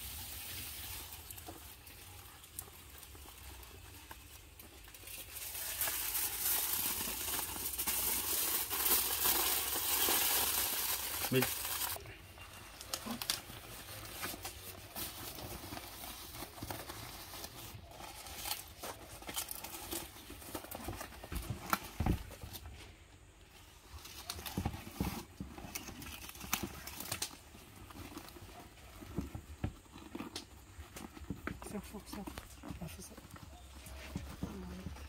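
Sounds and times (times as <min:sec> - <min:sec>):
banana leaves rustling and crackling: 0:00.0 - 0:35.0.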